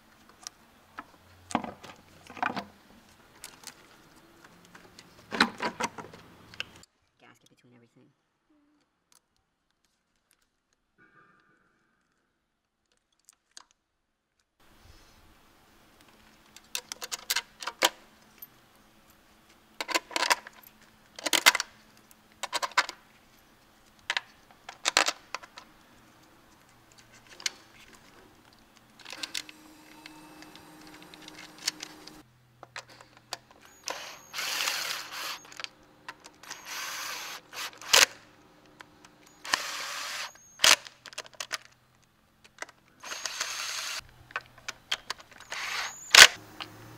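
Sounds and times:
cordless power ratchet: 29.0 - 32.2, 33.6 - 35.7, 36.4 - 38.3, 39.2 - 40.7, 43.0 - 44.0, 45.4 - 46.8.

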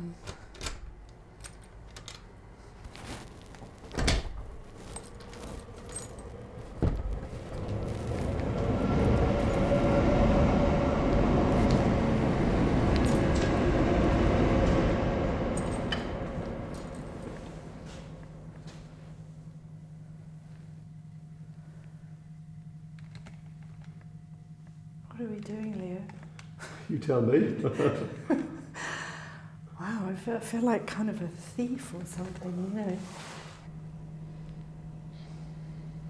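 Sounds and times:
loud rushing rumble: 6.4 - 18.5.

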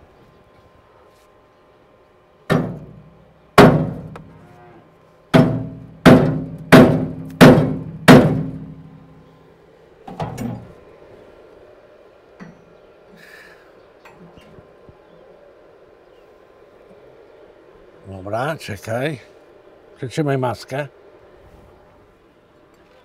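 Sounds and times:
hammer striking steel: 2.5 - 3.0, 3.6 - 4.2, 5.4 - 8.9.

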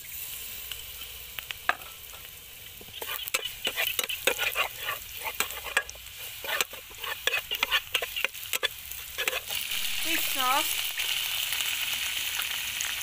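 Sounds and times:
food sizzling in hot oil: 0.0 - 13.0
metal spatula scraping pan: 3.0 - 10.5.

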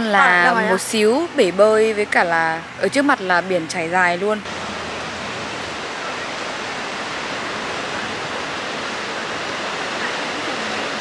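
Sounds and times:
ocean surf breaking: 0.0 - 11.0.

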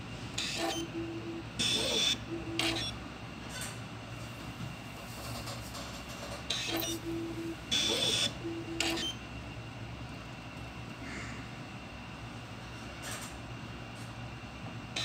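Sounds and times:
printer motors humming: 0.0 - 5.1, 6.1 - 11.0
motor buzzing: 0.4 - 2.9
short motor tones: 0.4 - 3.0, 6.5 - 9.2.

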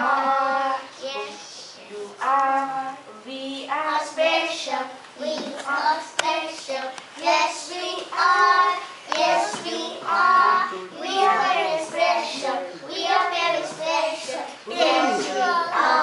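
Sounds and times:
children singing: 0.0 - 1.4, 7.3 - 16.0.

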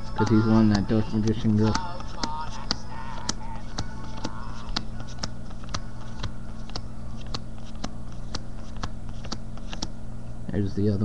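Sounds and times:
cards flipping with clicks: 0.7 - 9.9.

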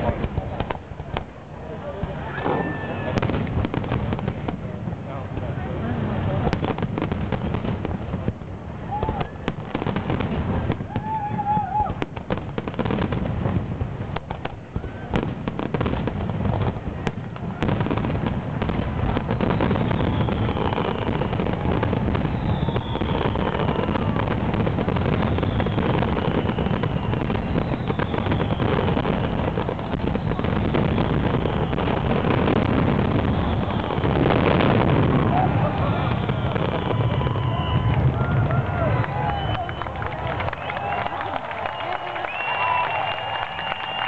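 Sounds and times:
fireworks bangs and crackle: 0.0 - 44.0
fireworks rumble: 0.0 - 44.0
high falling whistles: 40.5 - 44.0.

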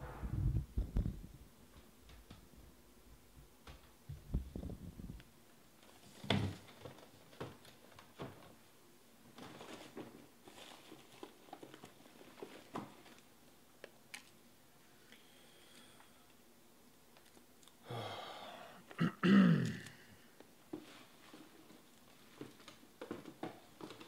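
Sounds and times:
soft rustling: 9.3 - 13.3, 20.6 - 24.0.

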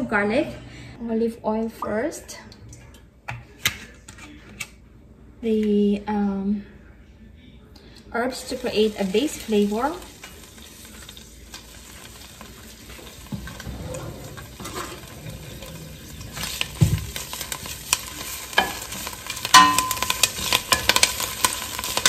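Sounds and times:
herbs sizzling in oil: 8.2 - 22.0
spoon scraping and knocking pot: 13.3 - 21.2.

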